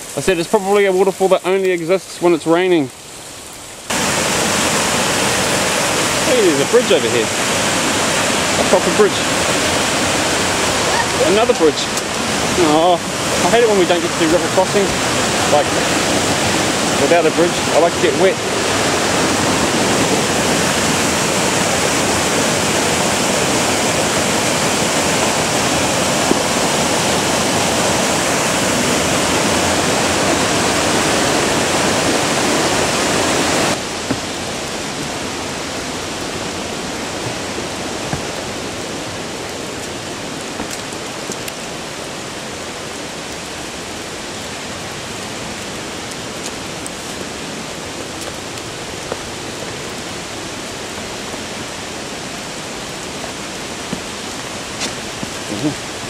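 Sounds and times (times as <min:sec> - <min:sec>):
stream water rushing: 0:00.0 - 0:56.0.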